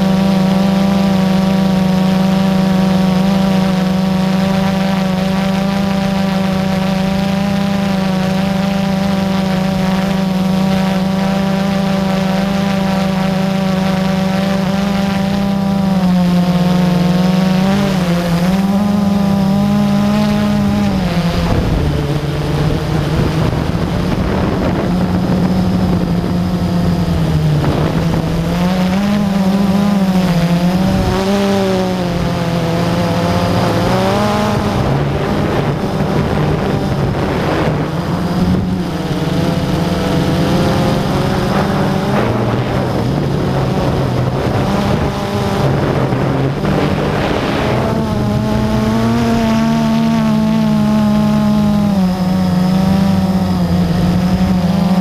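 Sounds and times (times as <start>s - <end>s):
drone propellers whining: 0.0s - 55.0s.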